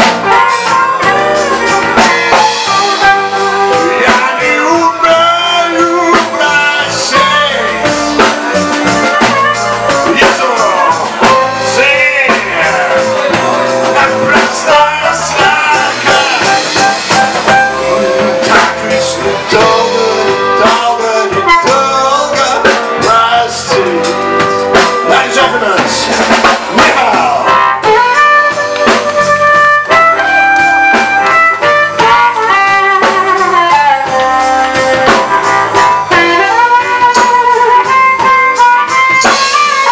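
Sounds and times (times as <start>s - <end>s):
drum kit: 0.0s - 39.9s
electric guitars: 0.0s - 39.9s
live blues-rock band: 0.0s - 39.9s.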